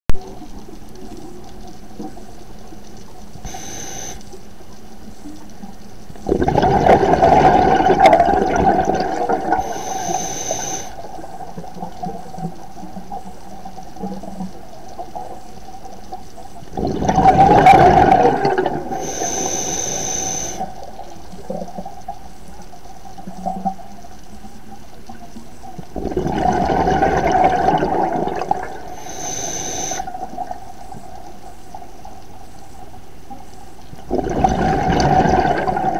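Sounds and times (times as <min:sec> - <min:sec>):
regulator inhale hiss: 0:03.4 - 0:04.4, 0:09.5 - 0:11.2, 0:18.8 - 0:21.1, 0:28.8 - 0:30.4
exhaled bubbles rushing: 0:06.2 - 0:09.7, 0:16.7 - 0:19.0, 0:25.9 - 0:28.9, 0:34.1 - 0:35.9.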